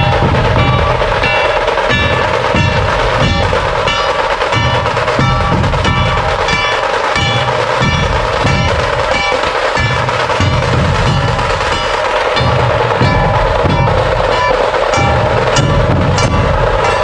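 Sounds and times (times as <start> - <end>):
drums playing driving rhythm: 0.0 - 17.0.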